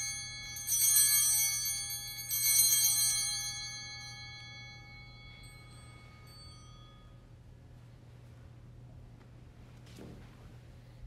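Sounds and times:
small bells ringing: 0.0 - 7.4.

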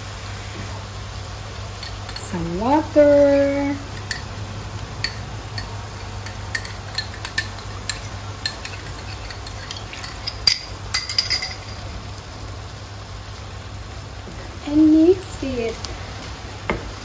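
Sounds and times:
steady low hum: 0.0 - 17.0
spoon clinking against bowl: 1.8 - 2.3, 3.9 - 4.4, 5.0 - 11.9.

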